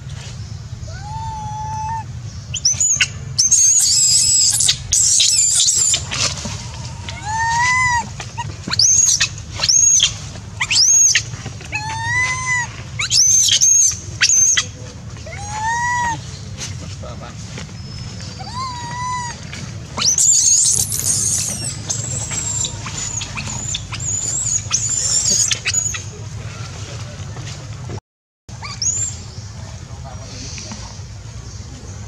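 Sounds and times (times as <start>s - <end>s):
baby monkey screaming: 0.8s - 16.3s, 18.3s - 26.0s, 28.6s - 29.2s
baby monkey cooing: 0.9s - 16.3s, 18.3s - 26.0s.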